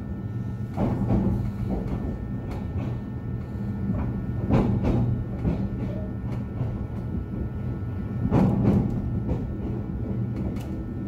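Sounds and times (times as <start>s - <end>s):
train rumbling: 0.0s - 11.0s
wheels clacking over rail joints: 3.9s - 10.8s.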